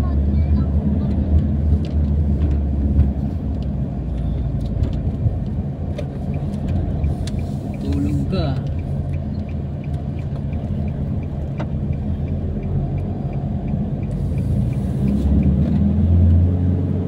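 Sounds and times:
vehicle engine and road rumble: 0:00.0 - 0:17.0
faint light ticking: 0:05.4 - 0:15.5.

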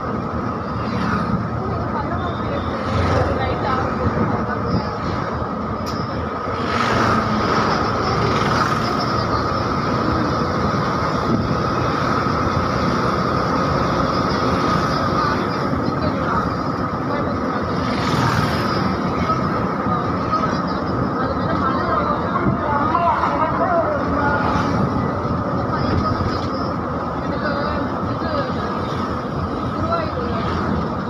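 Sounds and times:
bus engine and road noise: 0:00.0 - 0:31.0.

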